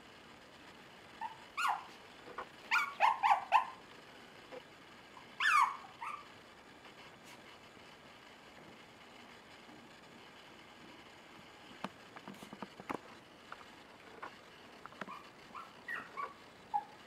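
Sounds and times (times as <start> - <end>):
puppies yipping and squealing: 1.2 - 2.0, 2.7 - 3.8, 5.2 - 6.3, 15.0 - 17.0.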